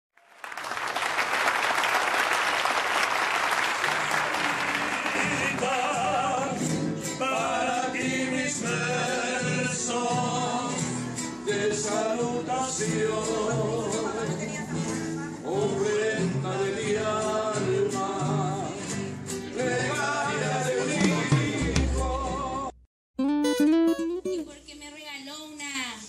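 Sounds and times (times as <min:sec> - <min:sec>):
people clapping: 0:00.2 - 0:06.2
mariachi band playing: 0:04.0 - 0:24.8
person singing: 0:04.8 - 0:14.3, 0:19.5 - 0:24.5.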